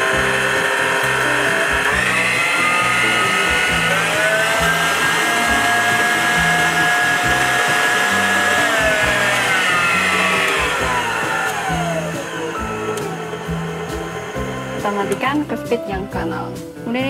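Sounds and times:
stand mixer motor whining: 0:00.0 - 0:15.6.

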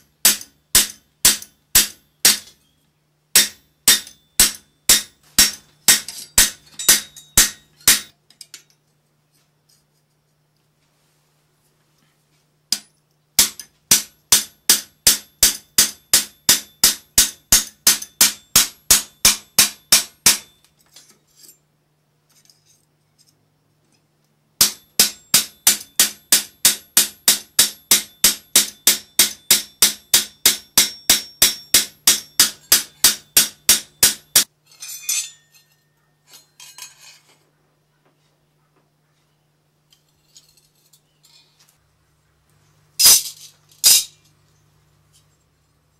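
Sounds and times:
hammer striking sheet metal: 0:00.0 - 0:02.6, 0:03.3 - 0:08.2, 0:12.7 - 0:20.6, 0:24.6 - 0:34.5
light metal clinks: 0:05.5 - 0:09.0, 0:34.7 - 0:37.3.

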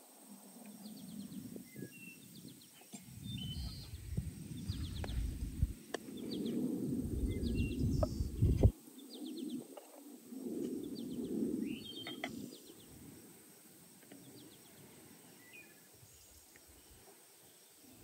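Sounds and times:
birds chirping and singing: 0:00.8 - 0:06.6, 0:07.2 - 0:09.6, 0:10.9 - 0:12.8
low rumble: 0:03.1 - 0:08.7.

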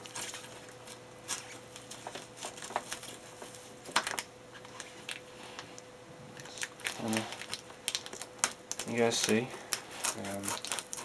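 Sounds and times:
scissors cutting cardboard tape: 0:10.0 - 0:11.0.

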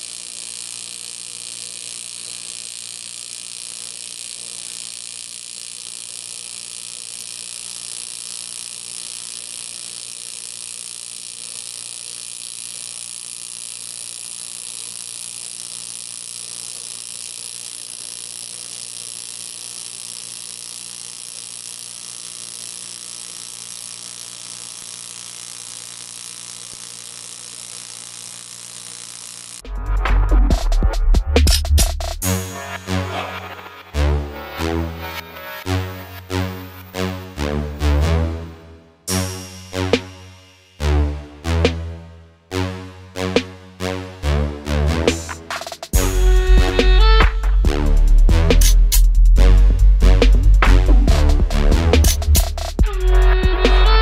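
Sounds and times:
welding arc buzzing and hissing: 0:00.0 - 0:54.0.

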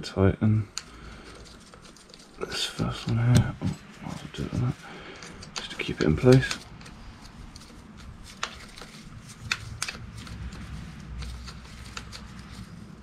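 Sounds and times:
metal parts clicking and tapping: 0:05.1 - 0:06.9.

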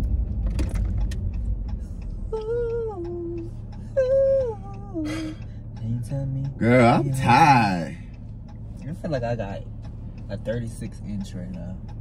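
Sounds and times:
low car cabin rumble: 0:00.0 - 0:12.0
person humming: 0:02.3 - 0:05.4.

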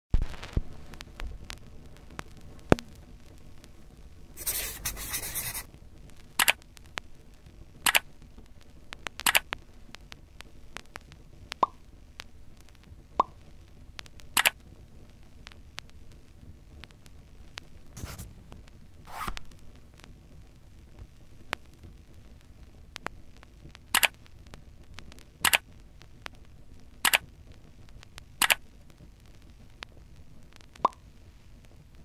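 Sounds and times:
short clicks and taps: 0:06.4 - 0:06.6, 0:09.2 - 0:09.5, 0:14.4 - 0:14.6, 0:24.0 - 0:24.2, 0:25.4 - 0:25.6, 0:27.0 - 0:27.2.

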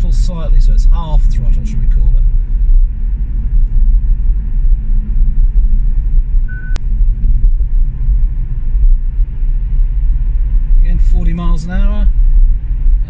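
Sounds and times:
road and tyre rumble: 0:00.0 - 0:13.0
brief beep: 0:06.5 - 0:06.8.

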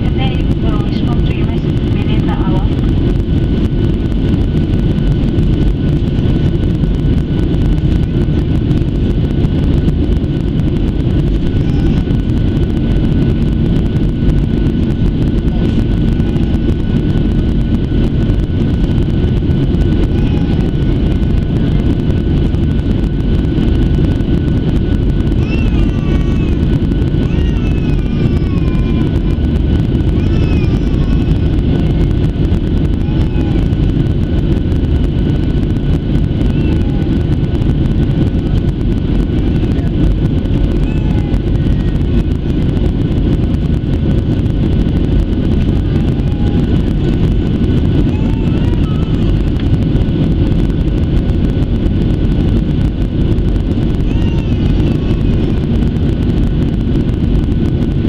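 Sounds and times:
airplane cabin rush: 0:00.0 - 0:58.0
faint steady whine: 0:00.0 - 0:58.0.

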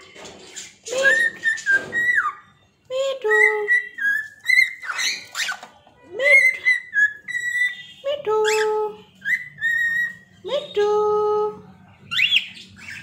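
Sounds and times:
cockatiel whistling: 0:01.0 - 0:02.5, 0:03.4 - 0:05.6, 0:06.3 - 0:07.9, 0:09.2 - 0:10.2.

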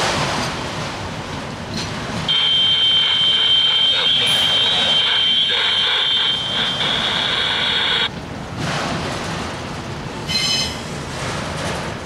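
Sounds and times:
freight train rolling past: 0:00.0 - 0:12.0
high-pitched wheel squeal: 0:02.3 - 0:08.1, 0:10.3 - 0:10.9.

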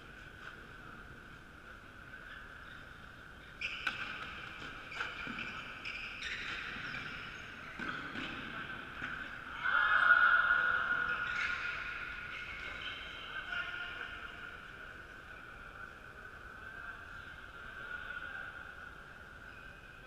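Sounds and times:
shoes squeaking on wooden floor: 0:03.4 - 0:08.5.

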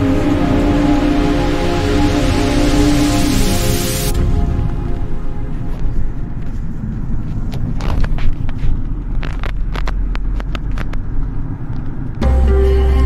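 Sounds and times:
car road noise rumble: 0:00.0 - 0:13.0.

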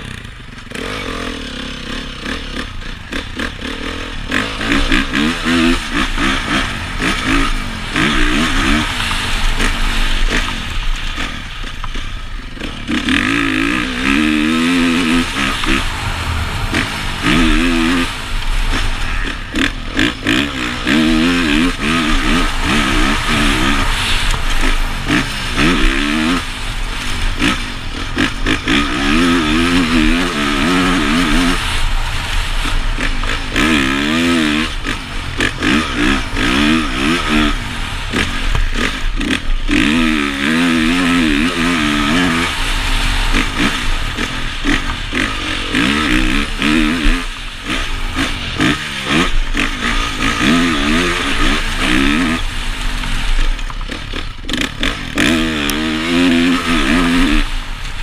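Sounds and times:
motorcycle engine revving: 0:00.0 - 0:58.0
wind rush: 0:14.4 - 0:39.7.

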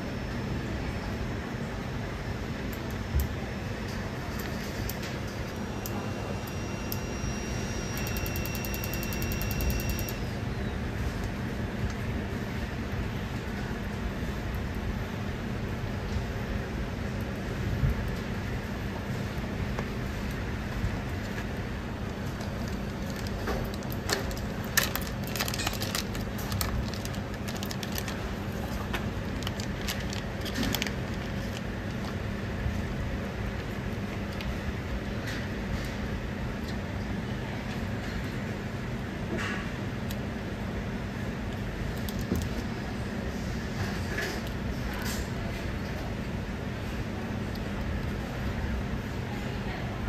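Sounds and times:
machine whooshing with low hum: 0:00.0 - 0:50.0
thin high whine: 0:05.4 - 0:10.8
plastic bag crinkling: 0:22.4 - 0:32.1.

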